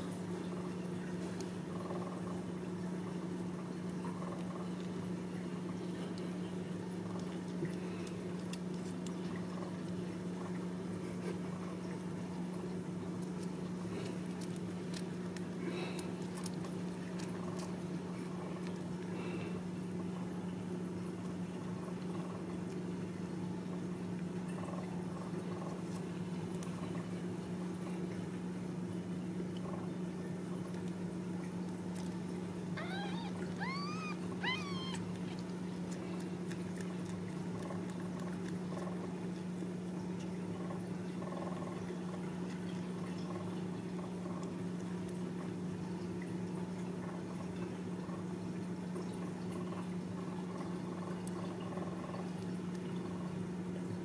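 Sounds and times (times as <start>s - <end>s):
steady low hum: 0.0s - 54.0s
kitten mewing: 32.7s - 36.6s.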